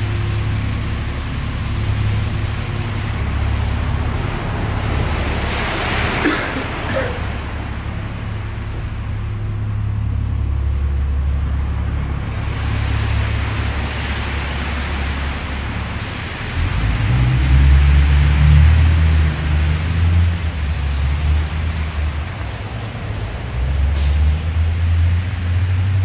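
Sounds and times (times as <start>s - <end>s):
low traffic rumble: 0.0s - 26.0s
vehicle passing: 11.7s - 26.0s.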